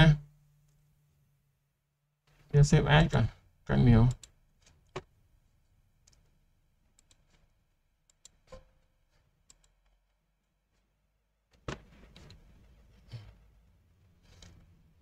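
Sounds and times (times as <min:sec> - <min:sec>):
computer mouse clicks: 0:08.1 - 0:08.4, 0:09.4 - 0:09.8.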